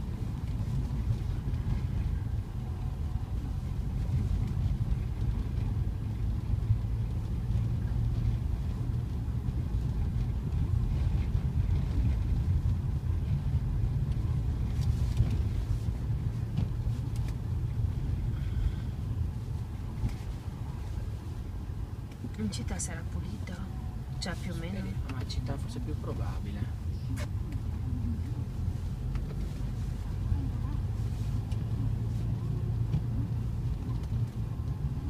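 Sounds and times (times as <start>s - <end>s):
car engine and road rumble: 0.0s - 35.0s.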